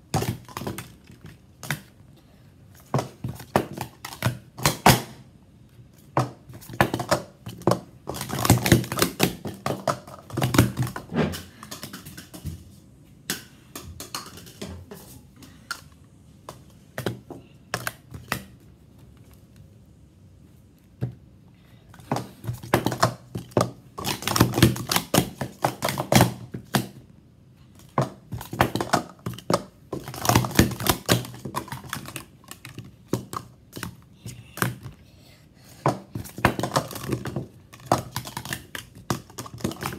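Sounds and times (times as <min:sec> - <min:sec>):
plastic cups clacking: 0:06.0 - 0:12.6, 0:13.2 - 0:18.6, 0:21.9 - 0:27.0, 0:27.8 - 0:34.9, 0:35.8 - 0:39.9.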